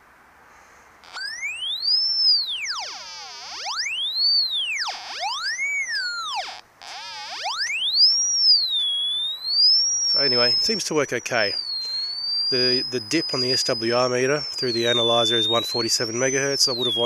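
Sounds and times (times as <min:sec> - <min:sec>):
receiver tone sweeping in pitch: 0:01.1 - 0:17.0.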